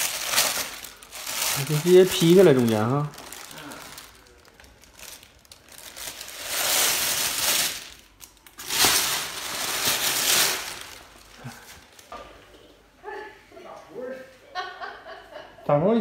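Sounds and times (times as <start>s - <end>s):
plastic bag rustling: 0.0s - 12.1s.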